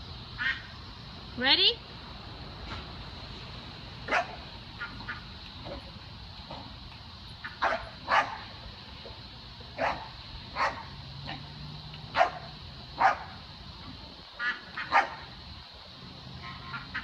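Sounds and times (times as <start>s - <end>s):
dog barking: 4.1s - 4.4s, 7.6s - 8.5s, 9.8s - 11.4s, 12.1s - 13.4s, 14.8s - 15.2s.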